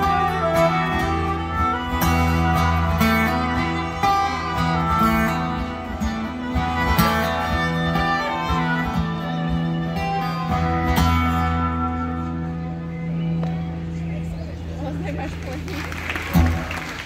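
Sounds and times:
held melody line: 0.0 - 13.3
strummed guitar chords: 0.0 - 14.2.

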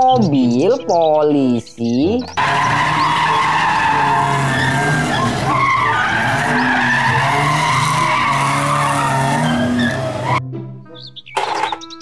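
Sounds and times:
tyres squealing: 2.3 - 10.4
engines running hard: 2.4 - 10.4.

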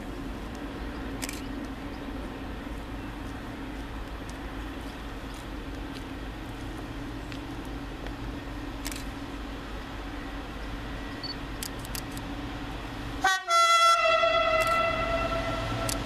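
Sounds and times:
locomotive rumbling: 0.0 - 16.0
locomotive horn: 13.2 - 16.0.

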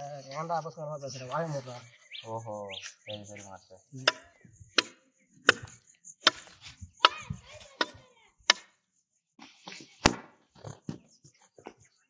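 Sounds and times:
billhook chopping wooden stick: 4.0 - 7.2, 7.8 - 8.8, 10.0 - 10.4.

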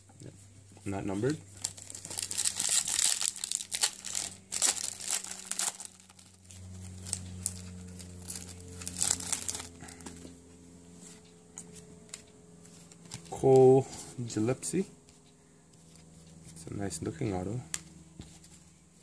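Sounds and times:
low steady hum: 0.0 - 19.0
foil wrapper crinkling: 1.0 - 10.2.

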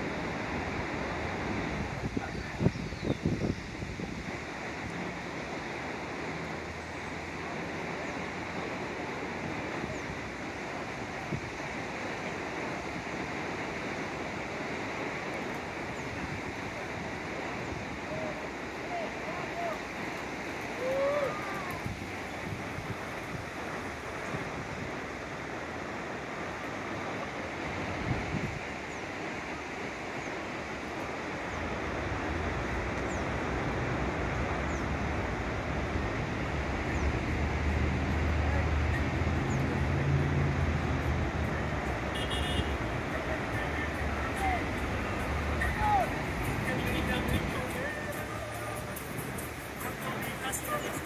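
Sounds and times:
river rushing: 0.0 - 51.0
traffic engine hum: 30.7 - 51.0.

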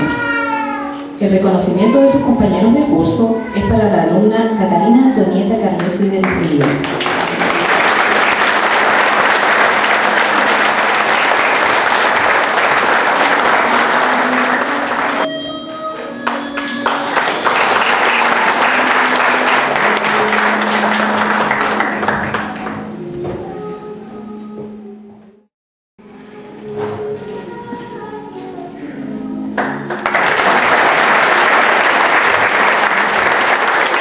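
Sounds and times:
music playing: 0.0 - 25.2, 26.0 - 34.0
audience applauding: 6.2 - 15.3, 16.2 - 22.9, 29.6 - 34.0.

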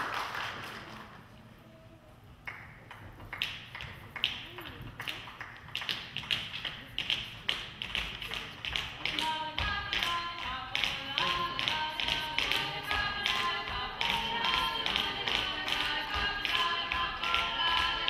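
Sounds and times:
tap shoes clicking on stage: 2.5 - 18.0
music: 9.0 - 18.0.

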